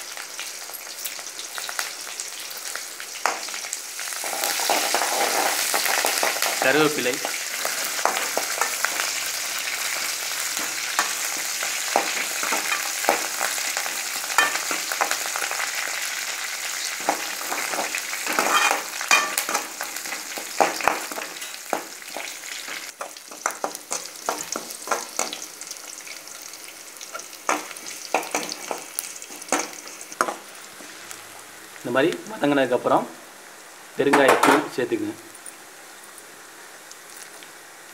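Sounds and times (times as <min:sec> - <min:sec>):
shallots sizzling in hot oil: 0:00.0 - 0:37.9
metal spatula scraping pan: 0:17.5 - 0:19.7.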